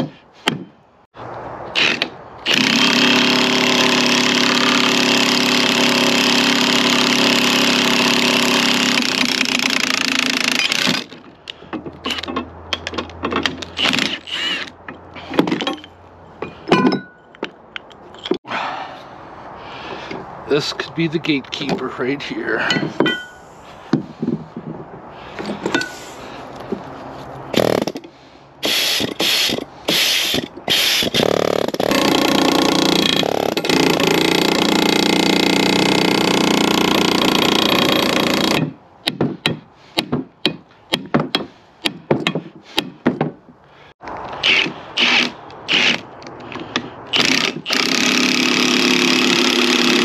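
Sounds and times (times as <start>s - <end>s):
impact wrench bursts: 1.7s - 11.1s, 27.5s - 28.0s, 28.6s - 38.8s, 44.4s - 50.0s
pneumatic air hammer: 1.7s - 11.2s, 12.0s - 15.7s, 27.5s - 43.3s, 44.3s - 50.0s.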